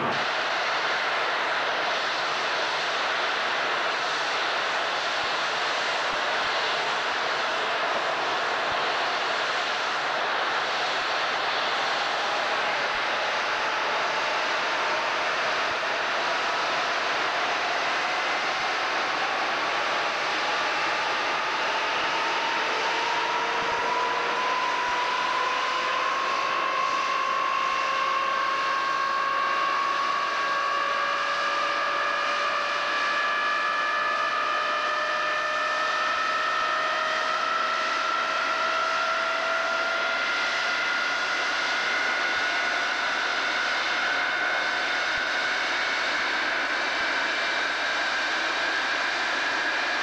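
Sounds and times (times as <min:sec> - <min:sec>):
jet engine whine rising: 0:00.0 - 0:50.0
jet engines roaring: 0:00.0 - 0:50.0.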